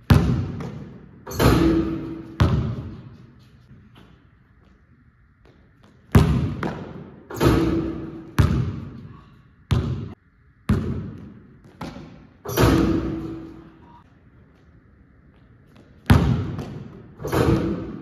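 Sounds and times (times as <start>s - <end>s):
basketball bouncing on hard court: 0.0s - 3.2s, 5.4s - 9.1s, 9.7s - 13.6s, 15.4s - 18.0s.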